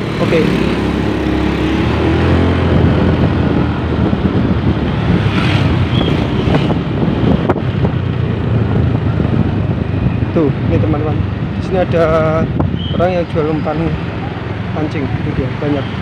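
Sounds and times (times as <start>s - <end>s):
motorbikes passing by: 0.0s - 16.0s
wind buffeting microphone: 0.6s - 16.0s.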